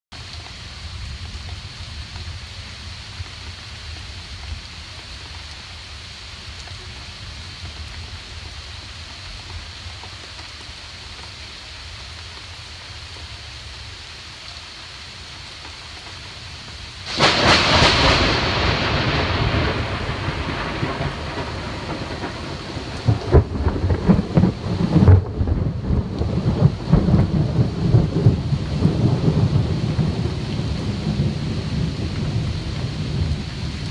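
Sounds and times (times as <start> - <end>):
heavy rain: 0.1 - 33.9
thunder rumbling: 17.0 - 33.9.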